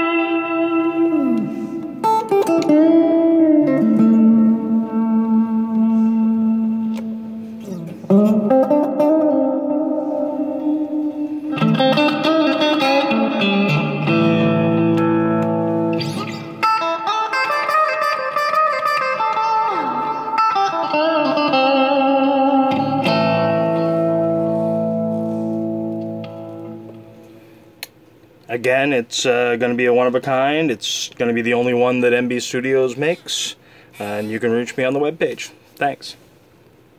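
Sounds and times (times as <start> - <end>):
bluesy electric guitar: 0.0 - 28.2.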